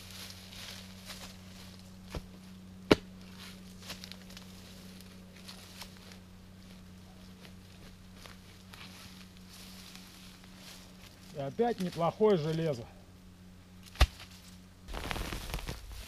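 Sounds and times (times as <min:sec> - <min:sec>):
steady low hum: 0:00.0 - 0:16.0
rustling steps: 0:14.3 - 0:16.0.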